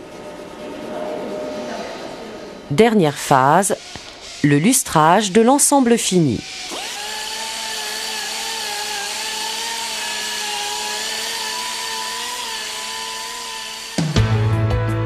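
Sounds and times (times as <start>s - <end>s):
rotary polisher motor whine: 3.2s - 14.2s
music: 14.0s - 15.0s.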